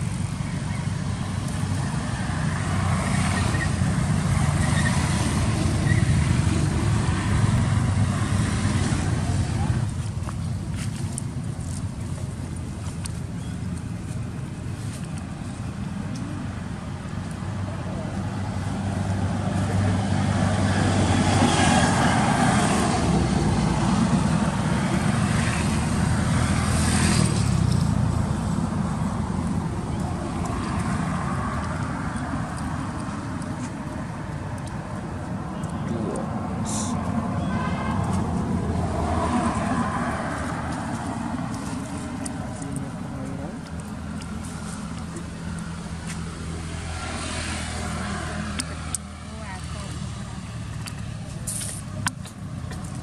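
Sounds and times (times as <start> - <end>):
vehicle engine passing by: 17.6 - 53.0.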